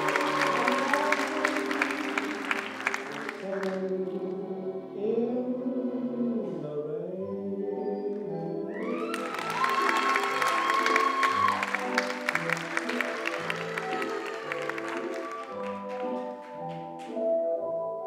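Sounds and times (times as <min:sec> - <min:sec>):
person singing: 0:00.0 - 0:09.1
performance music: 0:00.0 - 0:18.0.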